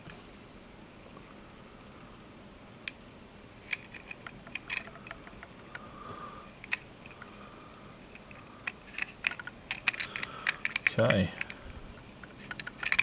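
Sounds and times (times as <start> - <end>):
faint hum: 0.0 - 13.0
small objects clicking and tapping: 3.7 - 5.9, 8.1 - 13.0.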